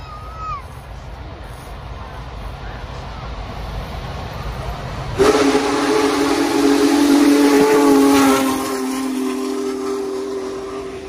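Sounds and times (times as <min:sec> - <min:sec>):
steam hiss: 0:00.0 - 0:11.0
steam locomotive whistle: 0:05.2 - 0:11.0.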